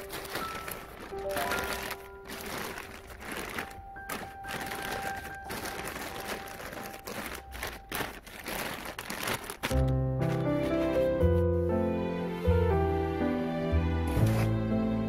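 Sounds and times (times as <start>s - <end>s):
plastic sheeting crinkling: 0.0s - 11.6s.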